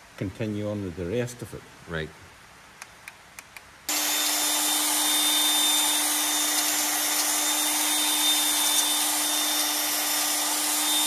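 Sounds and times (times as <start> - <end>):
electric drill whining: 3.9 - 11.0.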